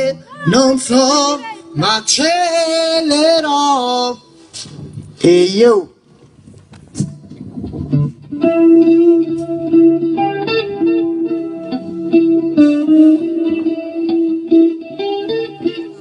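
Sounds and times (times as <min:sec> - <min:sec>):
electric guitar melody: 0:06.7 - 0:16.0.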